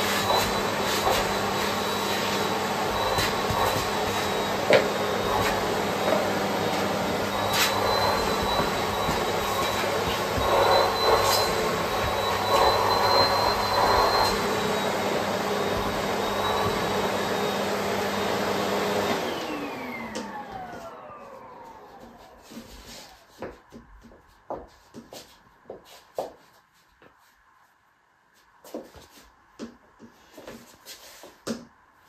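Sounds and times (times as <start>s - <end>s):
vacuum cleaner running with whine: 0.0s - 23.5s.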